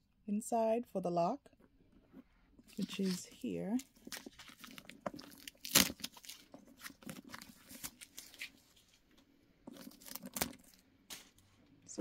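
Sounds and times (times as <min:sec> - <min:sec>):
handbag rustling: 0:02.6 - 0:08.2.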